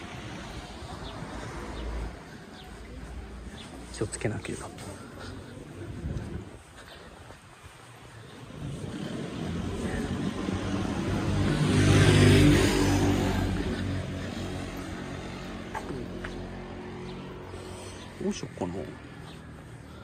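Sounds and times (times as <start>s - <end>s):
passing vehicle engine hum: 8.1s - 20.0s.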